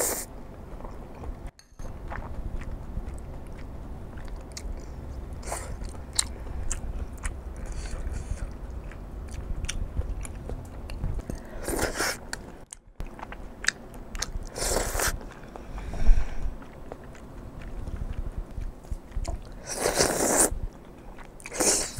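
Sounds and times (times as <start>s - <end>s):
air conditioner hum: 0.0s - 21.9s
chewing: 0.6s - 21.9s
wet noodle slurping: 14.4s - 15.2s, 19.3s - 20.6s.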